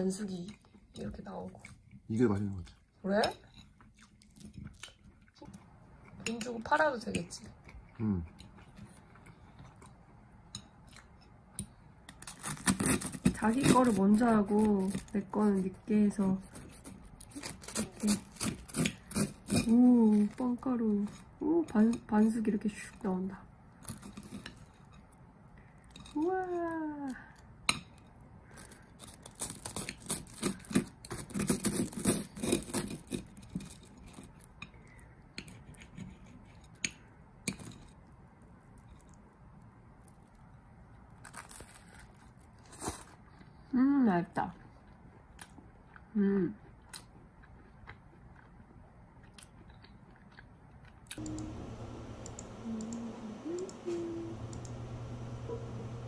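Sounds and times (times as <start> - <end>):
low electrical hum: 0.0 - 56.0
toast crust crunching: 28.5 - 34.6, 40.0 - 43.2
woman humming: 51.2 - 56.0.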